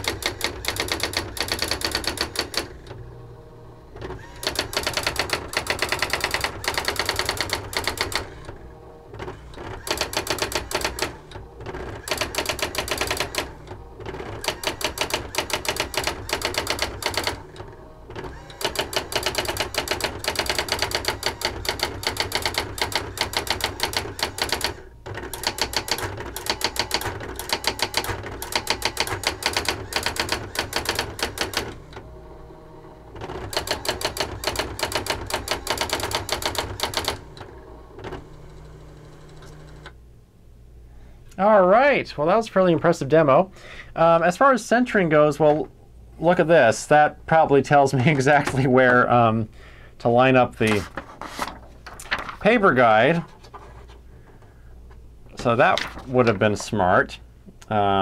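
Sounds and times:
electronic typewriter printing: 0.0s - 3.2s, 3.8s - 32.3s, 33.0s - 40.0s.

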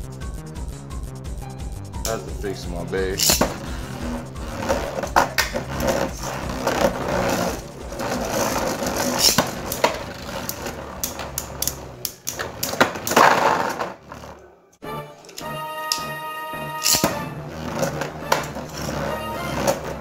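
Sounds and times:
spinning tops whirring: 2.8s - 14.4s.

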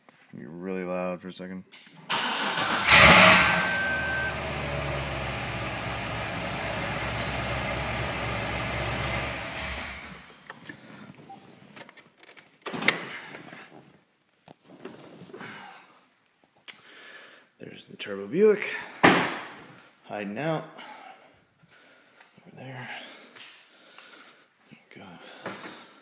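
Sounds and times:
car engine starting and idling: 2.1s - 10.3s
brief high tone: 2.9s - 4.8s.

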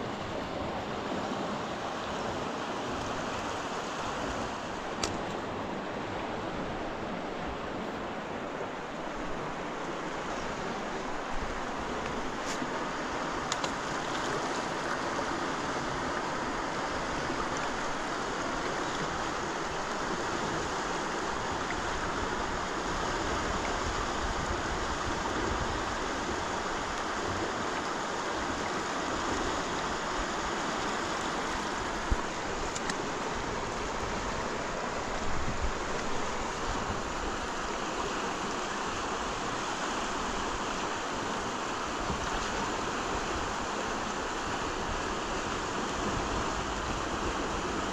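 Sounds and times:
running water rushing: 0.0s - 47.9s.

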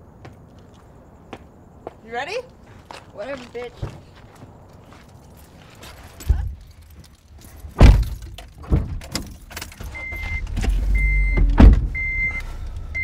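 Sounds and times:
car doors slamming: 7.8s - 13.0s
low engine rumble: 9.8s - 13.0s
car warning chime beeping: 9.9s - 13.0s.

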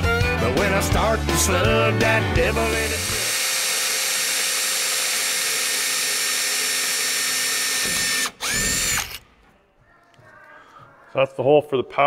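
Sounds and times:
power drill whining: 2.4s - 9.3s.

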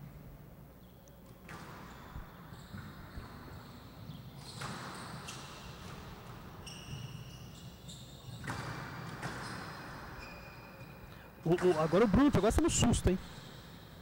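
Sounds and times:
sneakers squeaking on court floor: 0.8s - 14.0s
squash ball smacking rackets and walls: 1.2s - 10.9s.

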